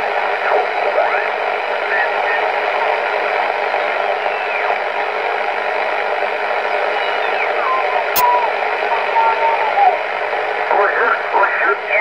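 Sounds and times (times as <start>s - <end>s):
whistles sliding in pitch: 7.1s - 10.0s
radio static hiss: 10.7s - 12.0s.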